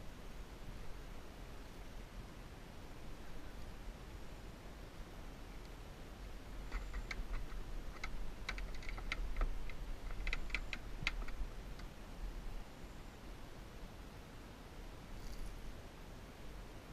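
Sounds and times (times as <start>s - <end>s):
light clicks and taps: 6.6s - 11.9s.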